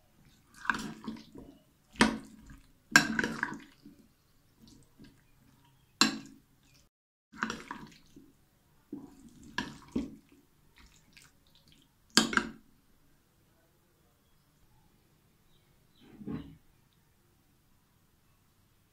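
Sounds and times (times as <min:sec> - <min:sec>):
spoon stirring thick batter: 0:00.0 - 0:12.7.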